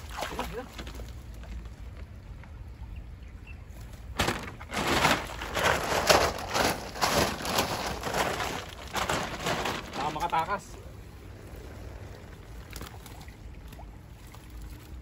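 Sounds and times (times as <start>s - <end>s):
net and sack rustling: 4.2s - 10.7s.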